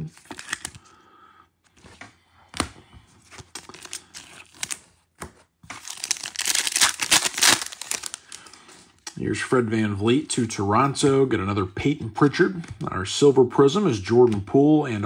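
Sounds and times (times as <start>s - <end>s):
plastic rustling: 5.8s - 8.9s.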